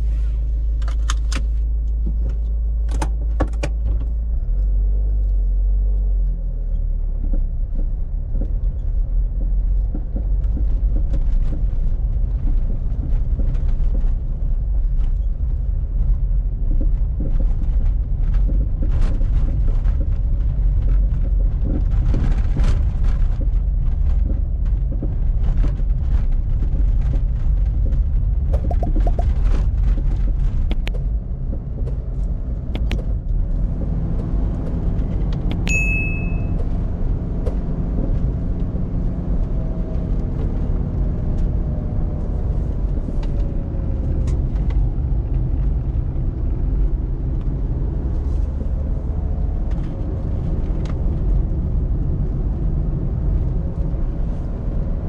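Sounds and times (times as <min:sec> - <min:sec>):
diesel engine drone from cabin: 0:00.0 - 0:26.3, 0:27.8 - 0:55.0
clicks and rattles: 0:21.2 - 0:33.2.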